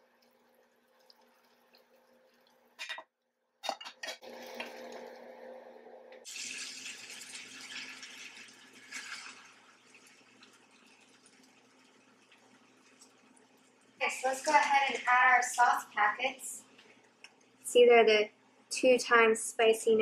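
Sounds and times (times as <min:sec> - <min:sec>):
water pouring with splashing hiss: 0:06.3 - 0:13.6.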